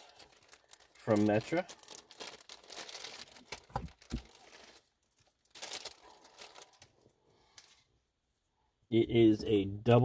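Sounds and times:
rustling wiring harness: 0:00.0 - 0:07.8.

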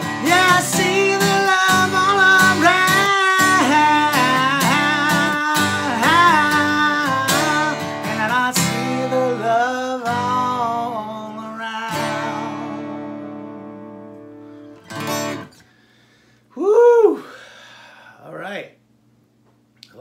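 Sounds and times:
man singing: 0:00.0 - 0:13.2
strummed acoustic guitar: 0:00.0 - 0:15.7.

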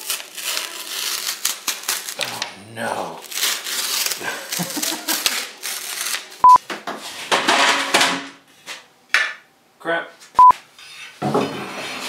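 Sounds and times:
clattering rustling noise: 0:06.7 - 0:08.9.

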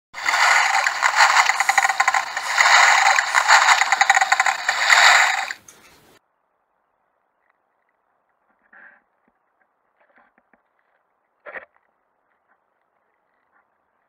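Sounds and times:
rapid clicking rattling and scraping: 0:00.0 - 0:05.9.

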